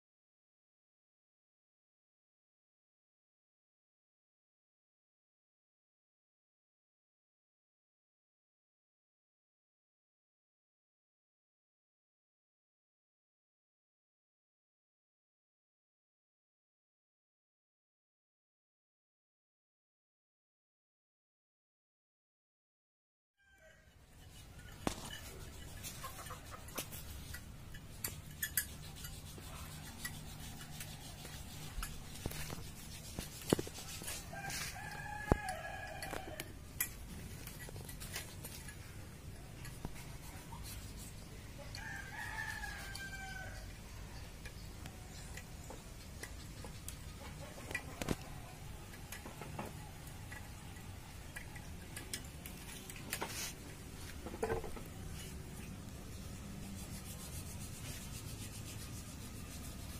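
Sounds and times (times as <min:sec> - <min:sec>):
rooster crowing: 0:23.4 - 0:24.0, 0:34.0 - 0:36.6, 0:41.6 - 0:43.7.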